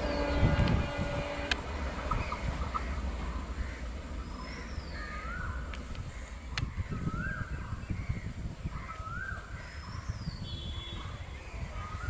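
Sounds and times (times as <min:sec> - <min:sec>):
passenger train rumbling: 0:00.0 - 0:07.8.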